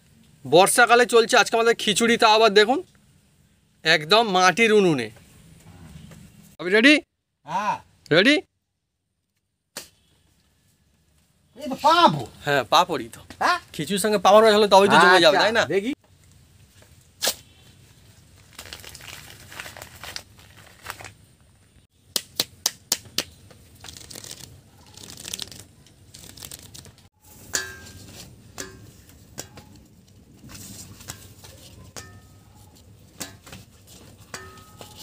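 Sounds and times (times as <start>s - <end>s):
brittle discs crackling: 18.2s - 21.6s, 23.0s - 35.0s
plastic packet crinkling: 18.3s - 21.2s, 23.8s - 27.1s.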